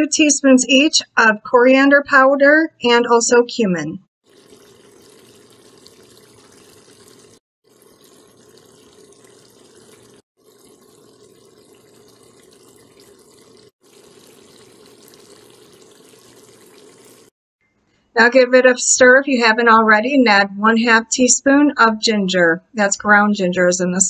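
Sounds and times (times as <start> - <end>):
pot simmering bubbling: 4.2 - 17.4.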